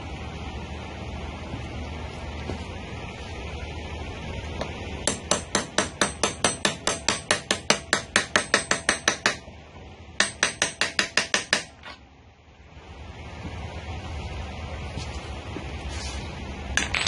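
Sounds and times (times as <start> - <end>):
rapid hammer blows: 5.0 - 9.5.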